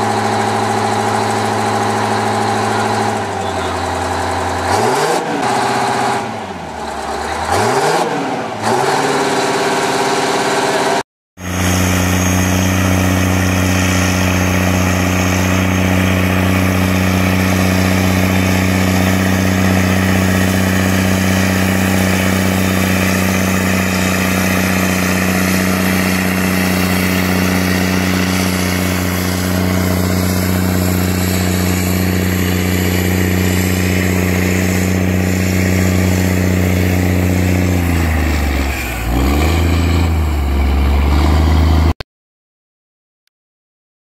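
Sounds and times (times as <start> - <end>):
tractor diesel engine under load: 0.0 - 42.0.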